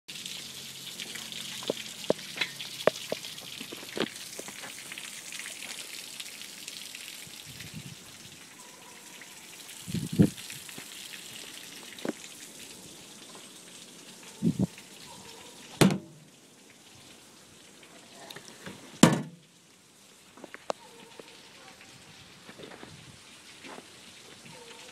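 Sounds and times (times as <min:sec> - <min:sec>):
hose water splashing and hissing: 0:00.1 - 0:24.9
sharp knocks and thumps: 0:15.8 - 0:16.1, 0:19.0 - 0:19.4.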